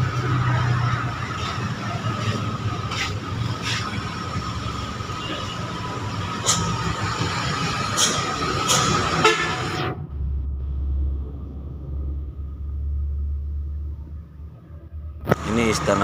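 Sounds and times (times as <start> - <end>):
wind and road noise: 0.0 - 16.0.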